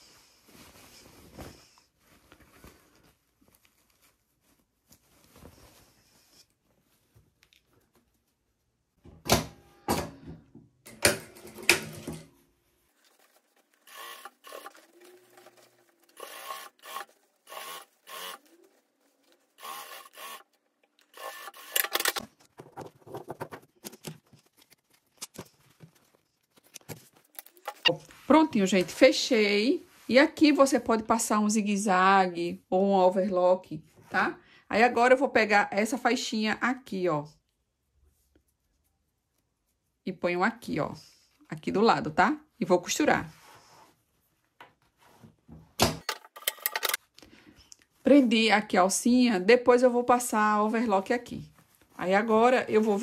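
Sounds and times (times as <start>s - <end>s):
cloth rustling: 0.2s - 8.9s, 12.3s - 16.3s
sewing machine stitching: 13.7s - 18.6s, 19.5s - 22.2s.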